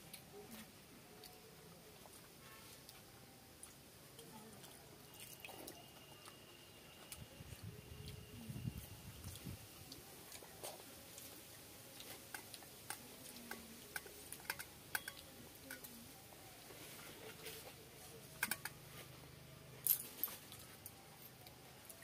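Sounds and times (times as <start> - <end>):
fingers mixing rice in bowls: 0.0 - 19.5.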